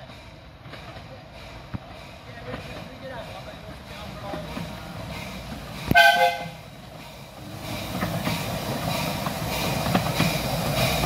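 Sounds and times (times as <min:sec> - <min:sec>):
miniature train running on track: 0:00.0 - 0:11.0
steam whistle blast: 0:05.9 - 0:06.6.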